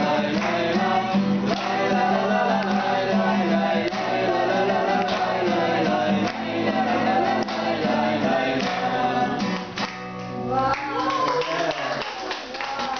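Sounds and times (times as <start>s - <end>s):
man and women singing: 0.0s - 9.8s
strummed acoustic guitar: 0.0s - 10.5s.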